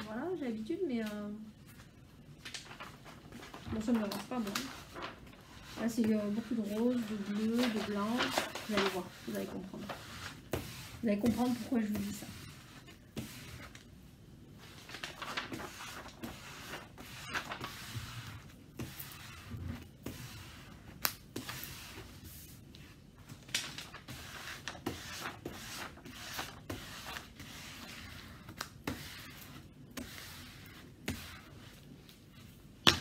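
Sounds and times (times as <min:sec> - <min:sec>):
canvas rustling and crinkling: 0:02.4 - 0:12.8.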